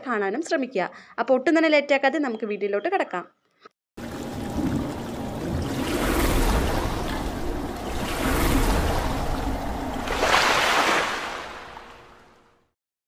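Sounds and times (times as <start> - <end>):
water rushing and splashing: 4.0 - 12.4.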